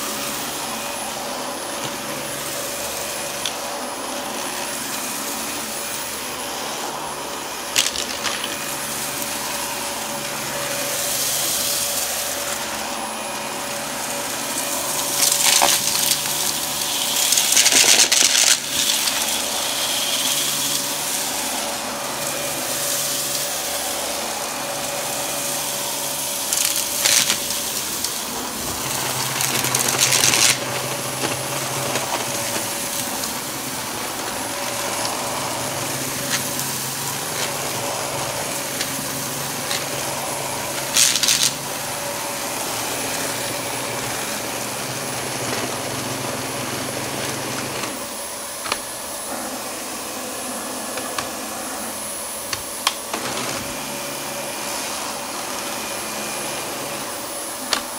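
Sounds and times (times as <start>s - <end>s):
vacuum cleaner motor whine: 0.0s - 57.9s
debris rattling into vacuum: 26.6s - 43.6s.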